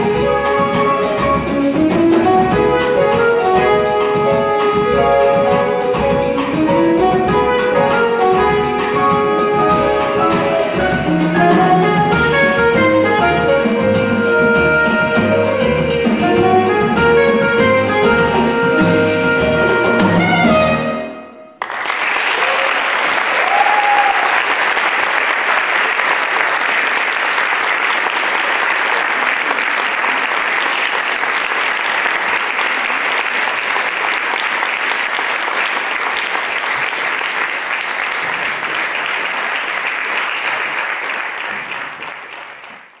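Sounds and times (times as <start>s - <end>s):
jazz band chord: 0.0s - 21.3s
audience applauding: 21.6s - 43.0s.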